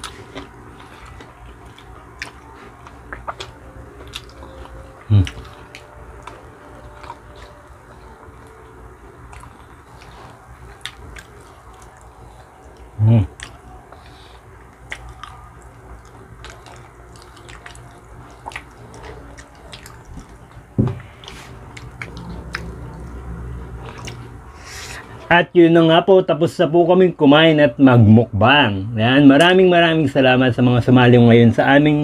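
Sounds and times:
wet chewing: 0.0 - 25.0.

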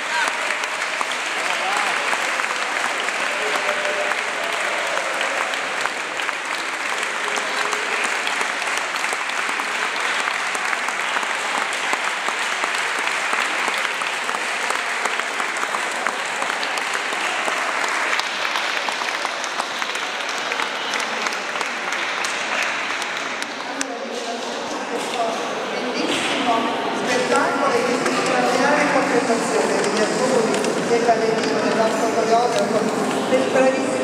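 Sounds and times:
audience applauding: 0.0 - 23.9.

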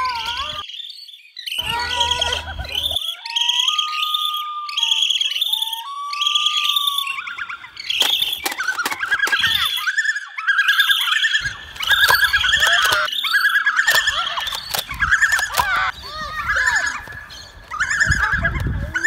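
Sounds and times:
bats squeaking: 0.0 - 19.0
eerie whistling tone: 1.6 - 14.6
sharp clicks: 7.8 - 9.8, 11.7 - 13.2, 13.8 - 15.9.

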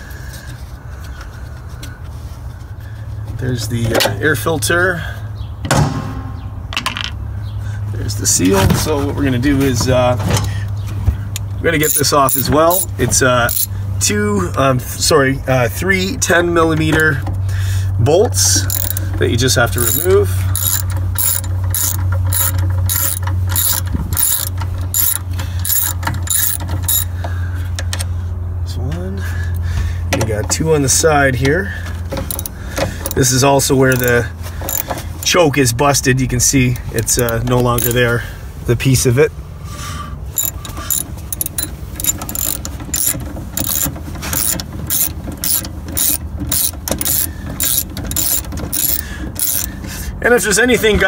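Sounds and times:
socket ratchet clicking: 11.8 - 13.7, 18.7 - 19.1, 19.8 - 27.1, 32.2 - 33.2, 33.9 - 35.4, 36.9 - 38.0, 40.4 - 49.8.

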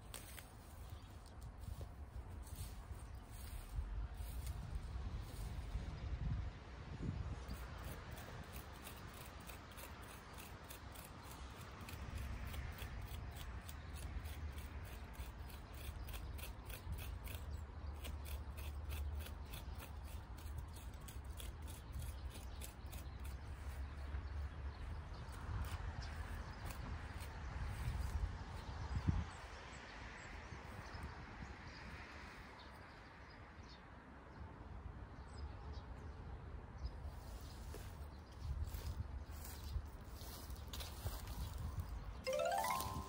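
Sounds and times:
shears snipping weeds: 0.0 - 1.8.

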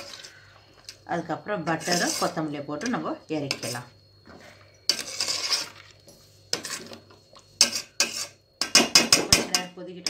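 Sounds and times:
spoon scraping metal pot: 0.0 - 0.4, 1.6 - 3.9, 4.8 - 9.7.

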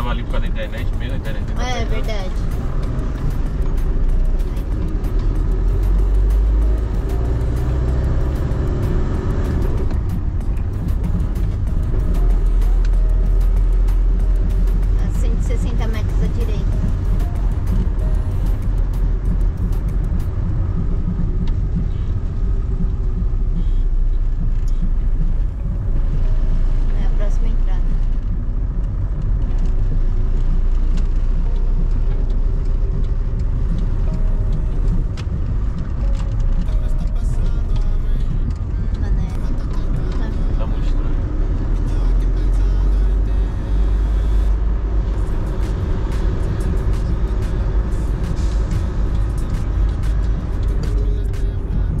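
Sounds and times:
engine and road noise rumble: 0.0 - 52.0.

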